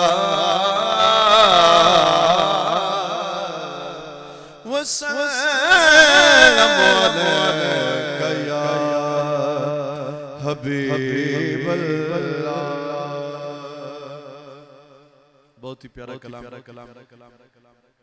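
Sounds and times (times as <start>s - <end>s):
man chanting into microphone: 0.0s - 15.0s, 15.6s - 17.2s.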